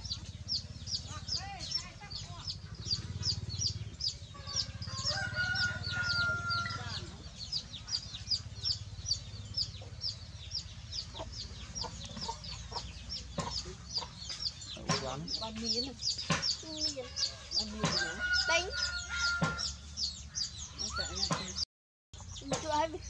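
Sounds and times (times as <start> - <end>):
chicks peeping: 0.0 - 21.6, 22.2 - 23.0
chicken drawn-out call: 4.3 - 7.1.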